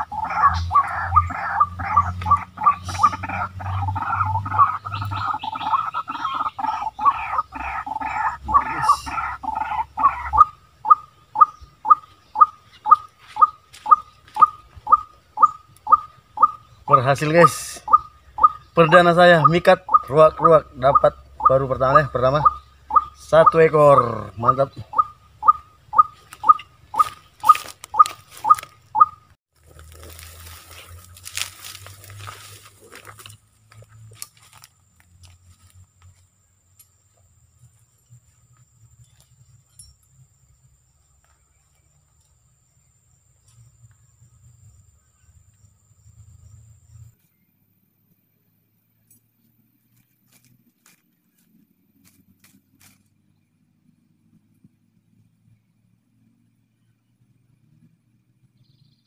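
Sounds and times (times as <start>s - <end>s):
waterhen croaking calls: 0.0s - 29.3s.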